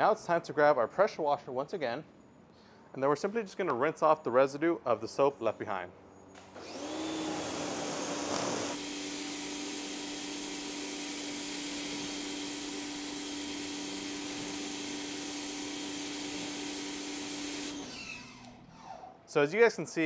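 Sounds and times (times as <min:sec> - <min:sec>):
pressure washer motor hum: 0:06.4 - 0:18.6.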